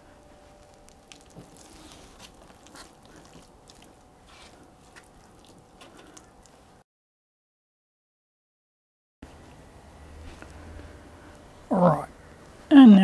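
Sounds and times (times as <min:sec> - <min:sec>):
wet squelches of modelling mix: 0:00.6 - 0:06.6.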